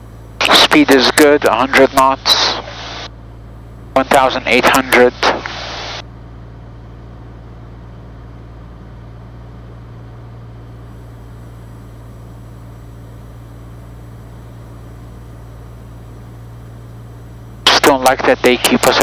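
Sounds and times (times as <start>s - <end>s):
airplane engine and propeller drone: 0.0s - 19.0s.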